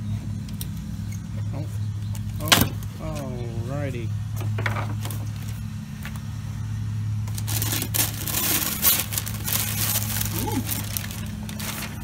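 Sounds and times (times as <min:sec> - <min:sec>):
steady low hum: 0:00.0 - 0:12.0
packing paper crinkling: 0:07.2 - 0:12.0.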